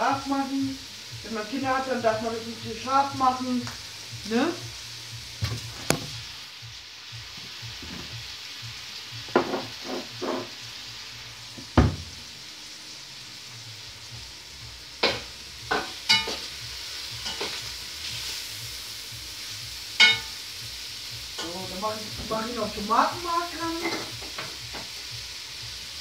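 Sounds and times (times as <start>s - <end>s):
meat sizzling in a pot: 0.0s - 26.0s
loud low thump: 11.6s - 12.2s.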